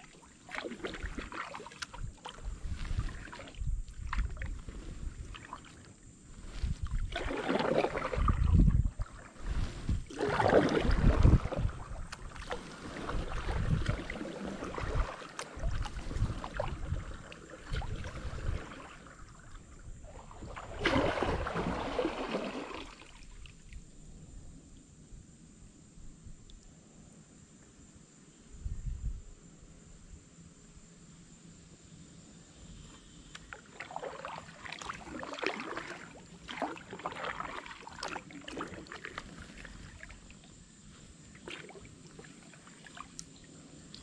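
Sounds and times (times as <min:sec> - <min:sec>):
paddle splashing in water: 0:00.0 - 0:23.8, 0:33.4 - 0:44.0
quiet water sounds: 0:00.0 - 0:44.0.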